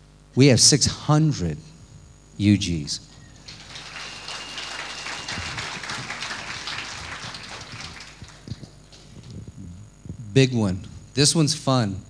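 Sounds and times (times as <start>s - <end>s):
audience applauding: 3.4s - 9.4s.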